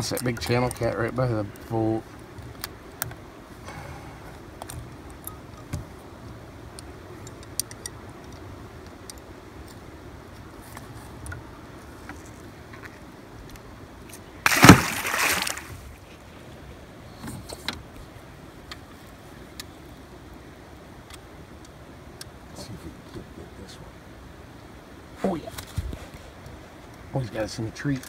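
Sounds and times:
fish splashing into river: 0:14.4 - 0:16.0.

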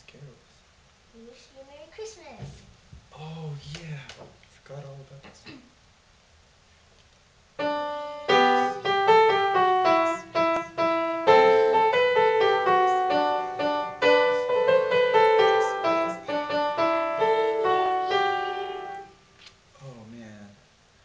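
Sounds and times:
upright piano playing carol: 0:07.6 - 0:19.2.

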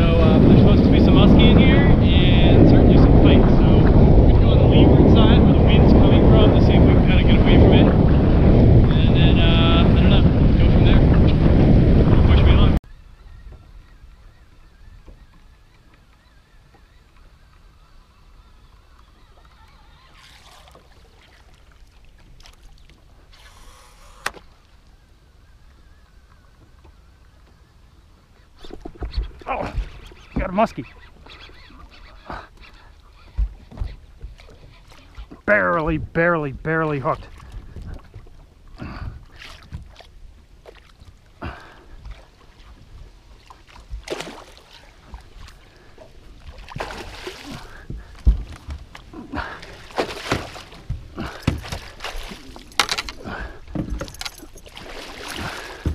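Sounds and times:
wind and waves against boat: 0:00.0 - 0:55.9
churning water: 0:14.4 - 0:27.5, 0:28.2 - 0:55.9
fish splashing in water: 0:43.4 - 0:45.8, 0:46.4 - 0:48.6, 0:49.3 - 0:53.4, 0:54.5 - 0:55.9.

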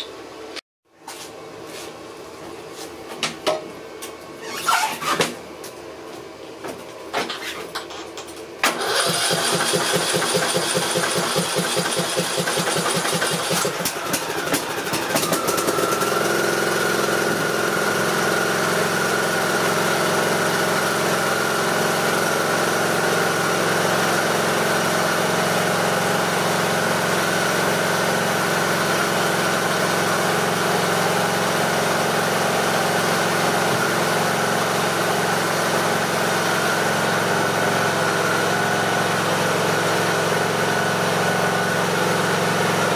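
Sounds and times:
electric starter cranking engine: 0:08.6 - 0:19.2
mower engine running steadily: 0:08.6 - 0:42.9.

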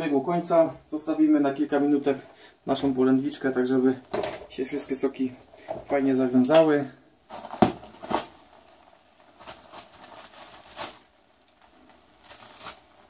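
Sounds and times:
plastic bag crinkling and rustling: 0:00.0 - 0:13.0.

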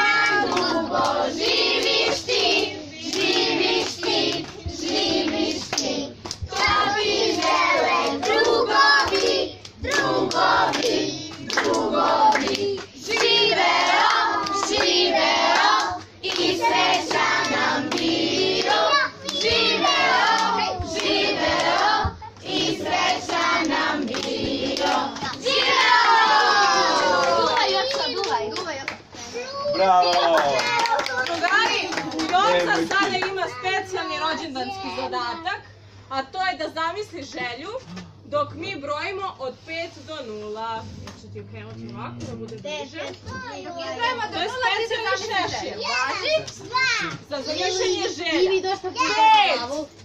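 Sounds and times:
group singing a celebration song: 0:00.0 - 0:28.2
people clapping in time: 0:07.4 - 0:29.1, 0:30.0 - 0:33.4.

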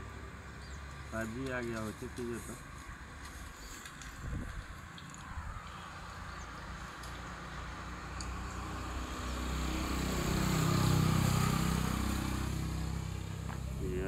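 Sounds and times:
vehicle engine passing: 0:05.7 - 0:14.0.

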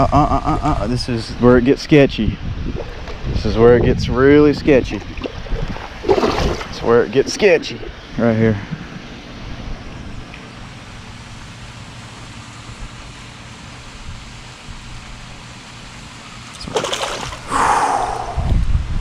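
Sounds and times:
steady low hum: 0:00.0 - 0:19.0
wind-like background noise: 0:00.0 - 0:19.0
fish splashing in water: 0:05.1 - 0:06.8, 0:16.5 - 0:18.2.

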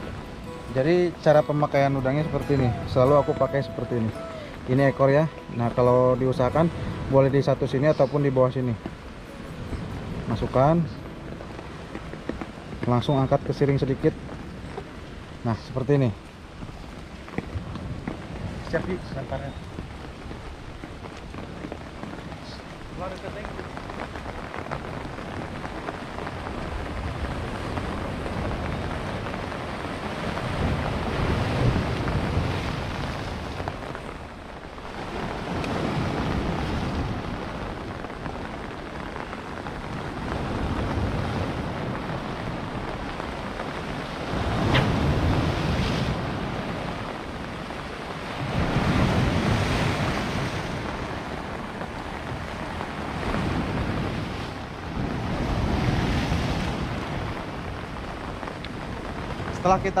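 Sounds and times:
waves breaking over rocks: 0:00.0 - 1:00.0
wind buffeting microphone: 0:00.0 - 1:00.0.

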